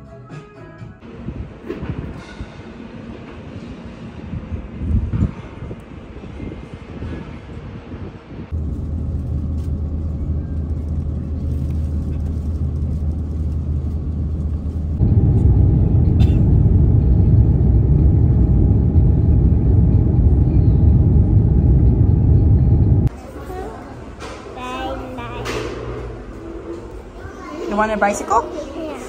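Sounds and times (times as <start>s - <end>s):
airliner engine and airflow rumble: 1.0s - 29.0s
steady low tones: 8.4s - 23.1s.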